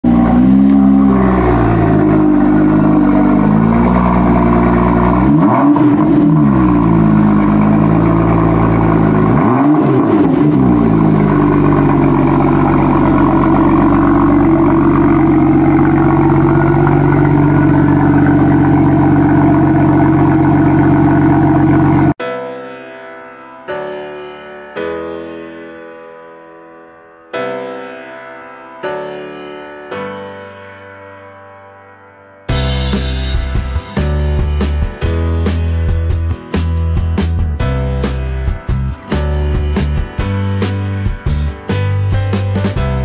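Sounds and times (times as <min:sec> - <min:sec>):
car engine revving: 0:00.0 - 0:22.2
car engine idling: 0:00.1 - 0:22.2.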